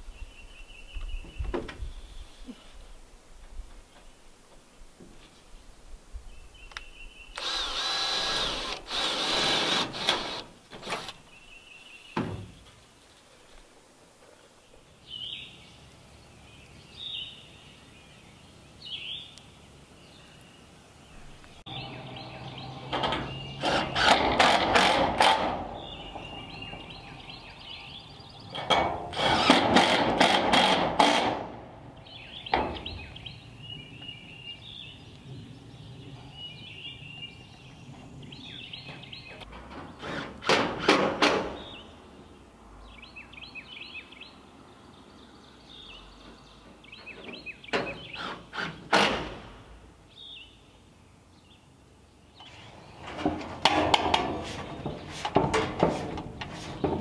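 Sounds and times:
birds chirping: 5.6s - 13.5s, 14.2s - 24.6s, 25.2s - 29.4s, 31.9s - 40.2s, 41.5s - 48.5s, 50.0s - 57.0s
metal roofing panel clattering: 53.0s - 57.0s.

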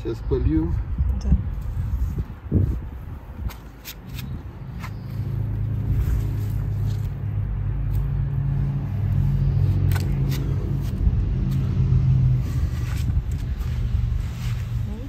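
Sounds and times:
engine humming: 3.4s - 15.0s.

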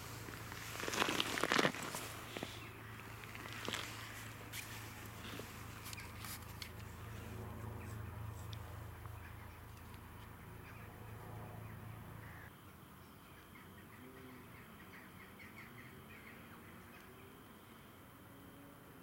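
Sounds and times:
distant birds chirping: 0.0s - 18.0s
low steady hum: 0.0s - 19.0s.

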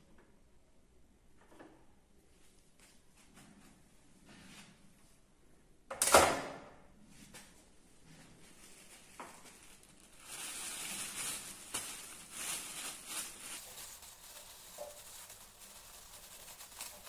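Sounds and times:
plastic bag crinkling: 8.4s - 17.0s.

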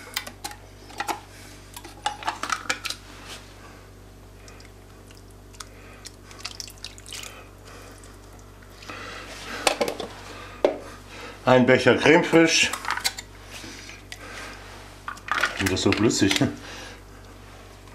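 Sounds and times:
cream pouring and dripping: 4.5s - 8.5s.

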